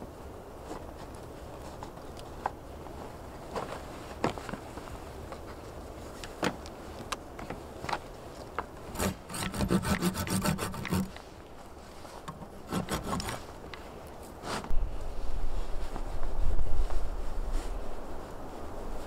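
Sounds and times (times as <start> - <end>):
hand saw cutting log: 8.9 - 11.3, 12.3 - 13.5.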